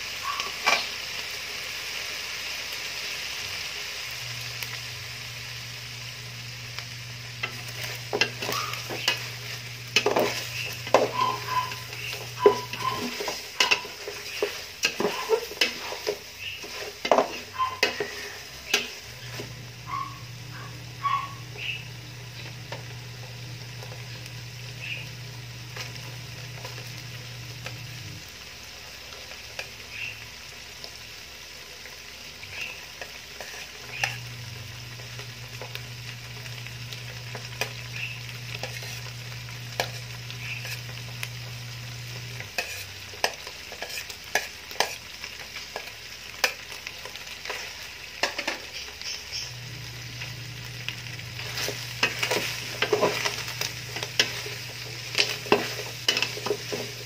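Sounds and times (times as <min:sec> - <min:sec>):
pork sizzling in fat: 0:00.0 - 0:57.0
spoon scraping a pot: 0:07.4 - 0:19.5, 0:33.0 - 0:34.3, 0:38.5 - 0:39.1, 0:39.7 - 0:41.0, 0:42.4 - 0:45.0, 0:51.4 - 0:57.0.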